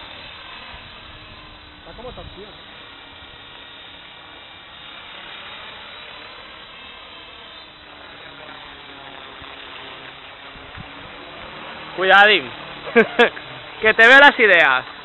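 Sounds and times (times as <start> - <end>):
model helicopter motor whine: 0.0 - 15.0
rotor wash hiss: 0.0 - 15.0.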